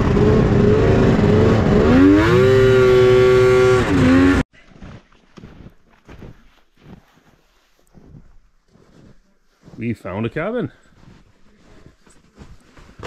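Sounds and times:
snowmobile engine revving: 0.0s - 4.4s.

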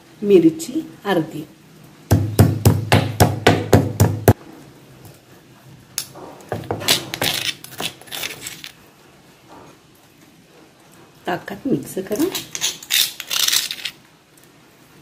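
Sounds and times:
stone pestle pounding in mortar: 2.1s - 4.4s, 6.5s - 7.5s
spoon scraping stone mortar: 6.5s - 8.8s, 12.2s - 14.0s.

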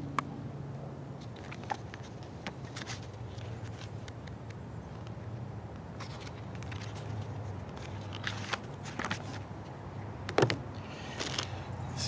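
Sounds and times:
paper rustling: 6.0s - 9.4s.

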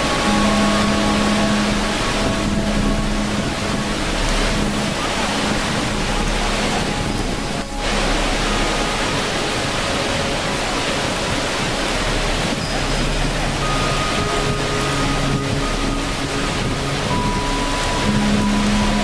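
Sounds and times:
waterfall roaring: 0.0s - 19.0s.

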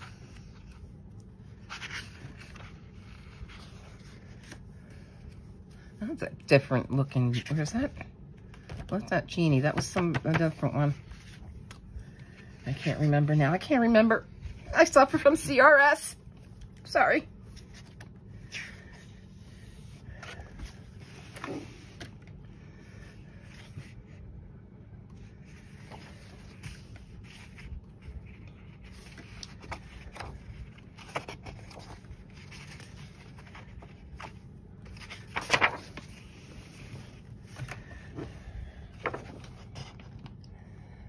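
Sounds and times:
paper pages turning: 0.0s - 5.9s, 17.4s - 22.3s, 25.2s - 40.4s
faint steady hum: 0.0s - 41.0s.

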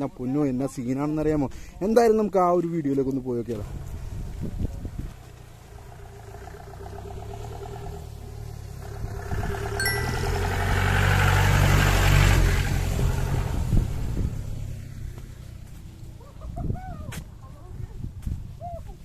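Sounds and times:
off-road vehicle engine passing: 3.6s - 16.4s
short electronic ding: 9.8s - 10.9s.

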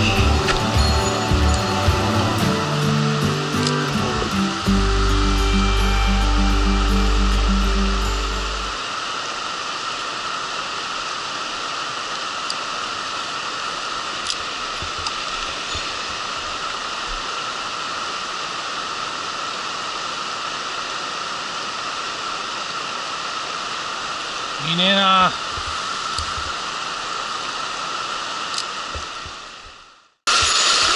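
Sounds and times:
stream rushing over rocks: 0.0s - 30.9s.

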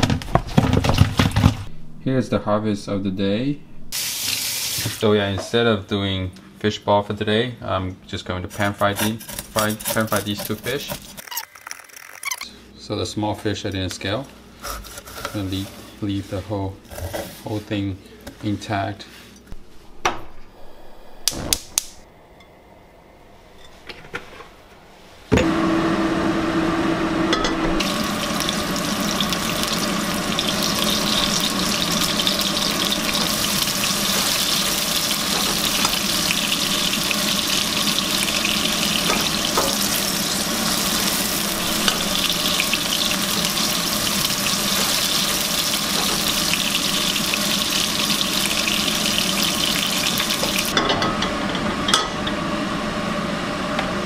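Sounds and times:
fish sizzling in hot oil: 4.0s - 5.0s, 27.8s - 50.8s.

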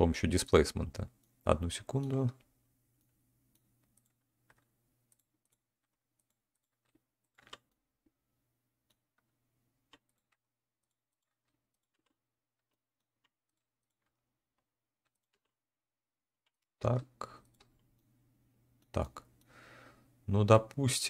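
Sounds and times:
keyboard and mouse clicking: 3.0s - 7.8s.

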